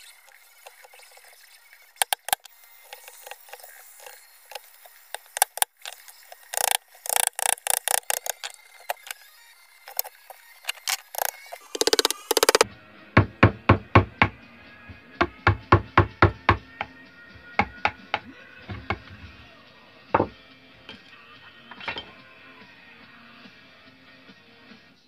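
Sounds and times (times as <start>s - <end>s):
chisel knocking on wood: 5.2s - 9.1s, 10.8s - 12.6s, 15.2s - 16.9s, 17.6s - 19.1s.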